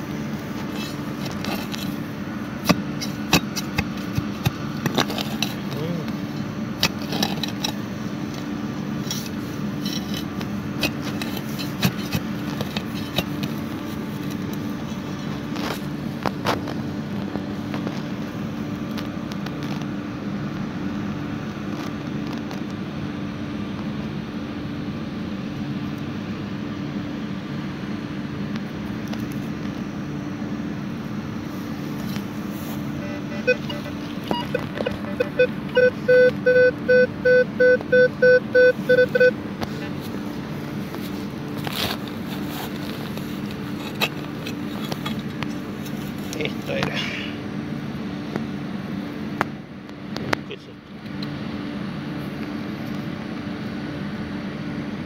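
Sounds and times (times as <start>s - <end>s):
steady low hum: 0.0s - 55.0s
shovel scraping into soil: 0.4s - 7.8s, 9.0s - 15.9s, 40.0s - 47.3s.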